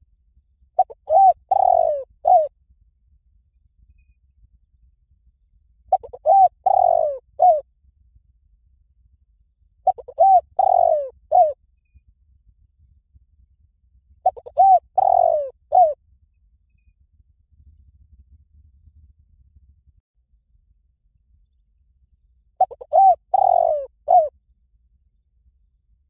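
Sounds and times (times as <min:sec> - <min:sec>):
dove cooing: 0:00.8 - 0:02.5, 0:05.9 - 0:07.6, 0:09.9 - 0:11.6, 0:14.2 - 0:16.0, 0:22.6 - 0:24.3.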